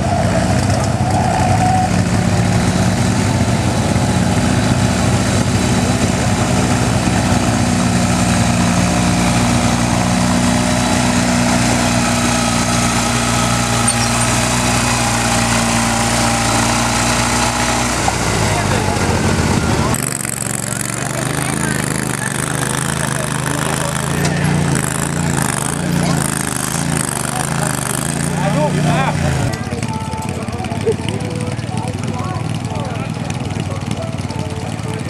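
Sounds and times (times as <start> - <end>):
garden tractor engine under load: 0.0 - 35.0.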